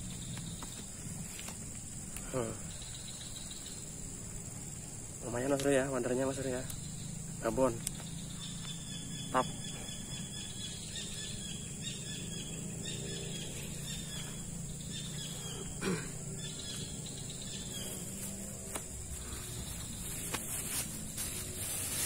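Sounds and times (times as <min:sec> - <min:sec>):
faint chirping: 0:00.0 - 0:22.0
insect chorus buzzing: 0:00.0 - 0:22.0.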